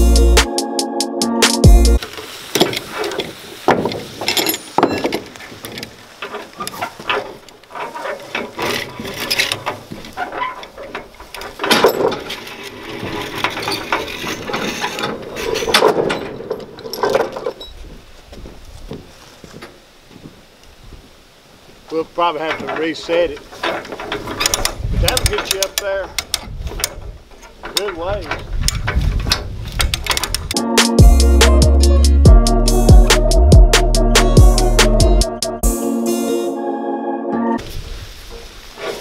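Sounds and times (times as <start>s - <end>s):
knocks on wooden deck: 3.7s - 4.2s
metal clinks: 4.2s - 5.2s.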